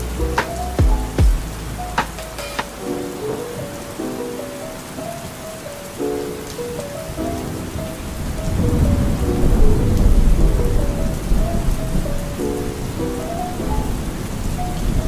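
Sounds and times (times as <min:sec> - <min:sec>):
soft quiet melody: 0:00.0 - 0:15.0
steady rain falling: 0:00.0 - 0:15.0
rolling thunder rumble: 0:07.1 - 0:15.0.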